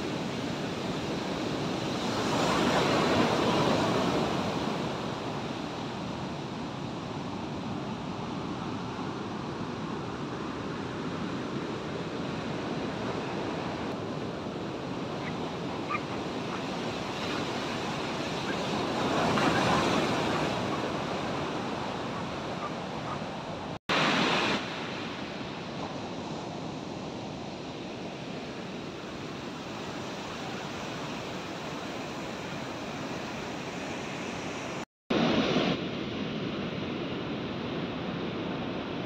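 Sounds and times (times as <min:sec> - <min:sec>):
ocean surf breaking on beach: 0:00.0 - 0:39.0
wind on microphone: 0:10.9 - 0:36.7.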